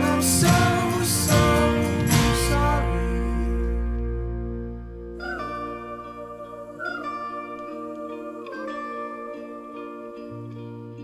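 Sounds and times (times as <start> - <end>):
guitar music: 0.0 - 11.0.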